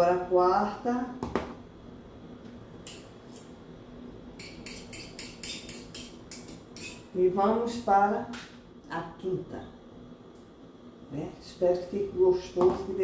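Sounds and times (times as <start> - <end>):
cutlery scraping over saucepan: 4.4 - 7.1.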